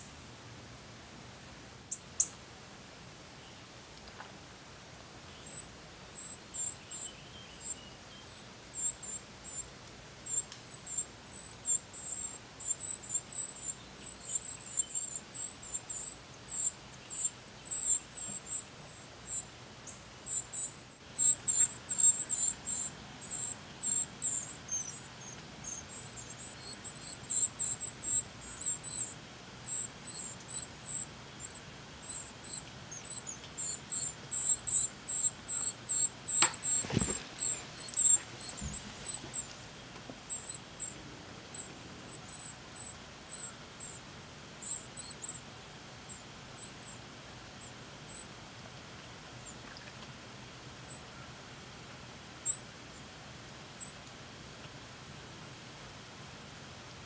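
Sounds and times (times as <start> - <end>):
nestlings peeping: 1.9 - 2.4, 4.9 - 47.0, 47.6 - 48.3, 52.4 - 52.6.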